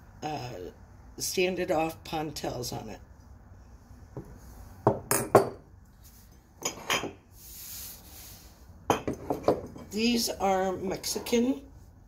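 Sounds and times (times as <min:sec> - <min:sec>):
glass and ceramic clinking on table: 0:04.9 - 0:05.6, 0:06.6 - 0:07.2, 0:08.9 - 0:09.8
soft rustle: 0:05.9 - 0:06.5.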